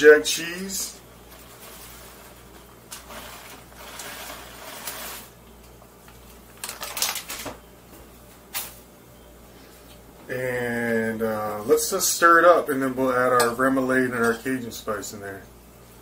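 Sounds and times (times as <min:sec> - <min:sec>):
plastic bag rustling: 0:01.2 - 0:05.4, 0:06.5 - 0:07.6.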